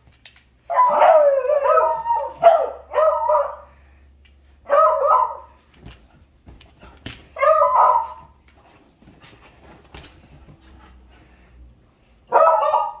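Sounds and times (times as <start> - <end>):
puppy barking: 0.7 - 3.7, 4.6 - 5.6, 7.4 - 8.4, 12.3 - 13.0
quiet knocks and rustling: 8.2 - 11.9.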